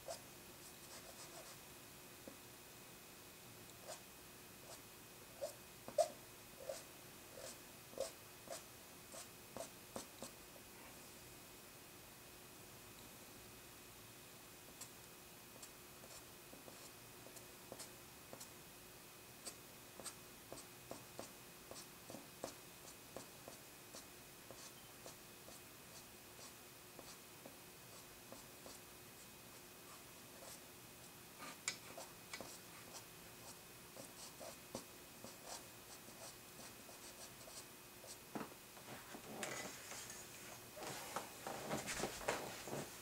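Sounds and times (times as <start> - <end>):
faint steady hum: 0.0 - 43.0.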